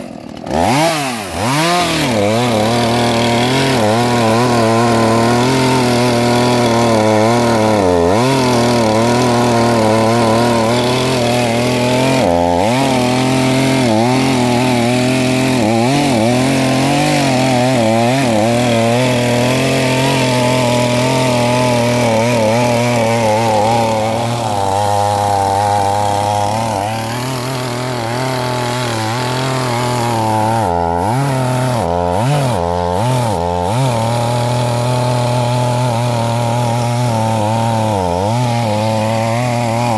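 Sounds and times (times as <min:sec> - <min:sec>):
chainsaw cutting wood: 0:00.0 - 0:39.9.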